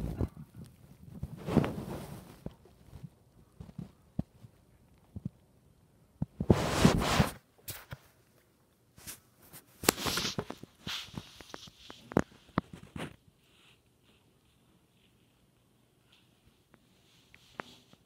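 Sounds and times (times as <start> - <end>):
phone handling rubbing and rustling: 9.0 - 13.2.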